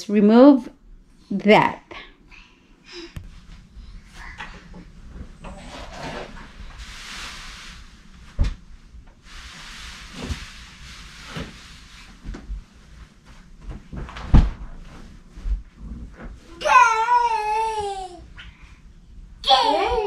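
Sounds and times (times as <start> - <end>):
bedding rustling: 3.3 - 18.1
bedding thumps: 12.2 - 16.4.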